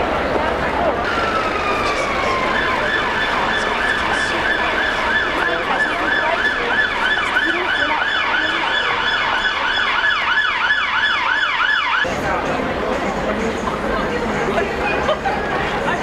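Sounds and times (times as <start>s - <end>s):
city traffic: 0.0s - 16.0s
crowd noise: 0.0s - 16.0s
siren yelping and wailing: 1.0s - 12.1s.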